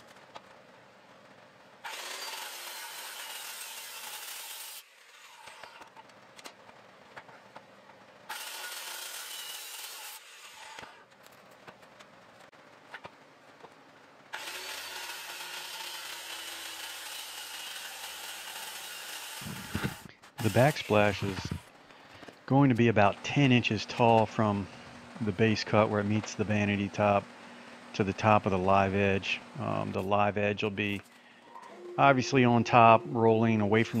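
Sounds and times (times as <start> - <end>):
circular saw cutting wood: 1.8 - 5.9, 8.3 - 11.0, 14.3 - 21.7, 31.6 - 34.0.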